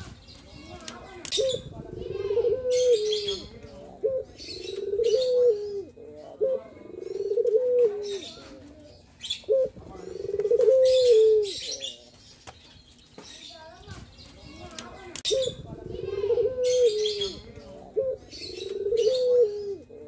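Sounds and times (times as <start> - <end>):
dove cooing: 1.3 - 12.0, 15.2 - 20.0.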